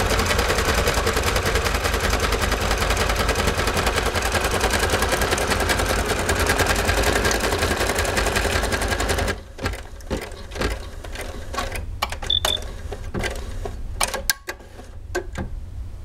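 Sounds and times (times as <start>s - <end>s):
high double beep: 12.3s - 12.6s.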